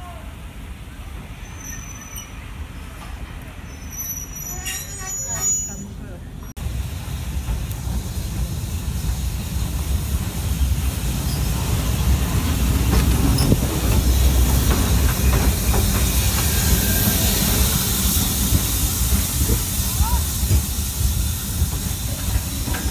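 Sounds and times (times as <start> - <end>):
steam locomotive rumbling: 0.0 - 22.9
hissing steam: 6.6 - 22.9.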